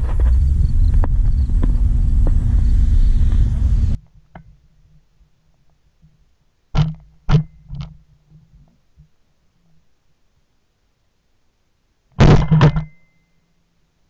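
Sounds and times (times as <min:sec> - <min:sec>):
loud low rumble: 0:00.0 - 0:04.0.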